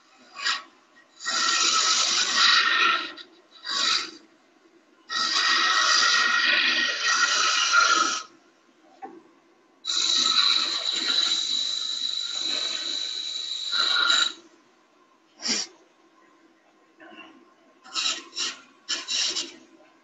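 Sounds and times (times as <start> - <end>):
turning tool cutting wood: 9.9 - 14.4.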